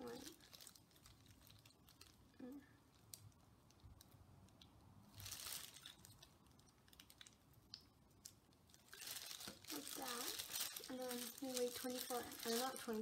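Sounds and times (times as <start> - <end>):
plastic rustle: 0.0 - 3.4, 5.1 - 7.5, 8.5 - 13.0
plastic crinkling: 0.0 - 13.0.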